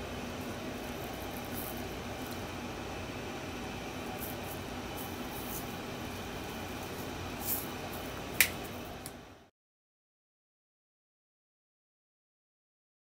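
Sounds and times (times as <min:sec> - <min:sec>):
faint hum: 0:00.0 - 0:09.5.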